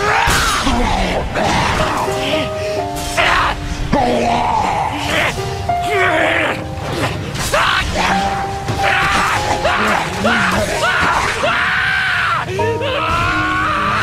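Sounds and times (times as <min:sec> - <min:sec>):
dramatic battle soundtrack music: 0:00.0 - 0:14.0
voices yelling: 0:04.2 - 0:14.0.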